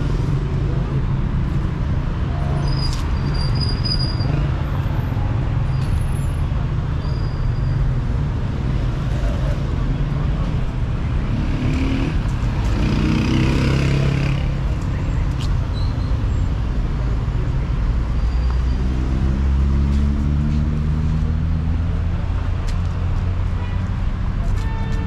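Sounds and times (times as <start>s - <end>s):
traffic rumble: 0.0s - 25.0s
passing vehicle engine: 18.5s - 23.5s.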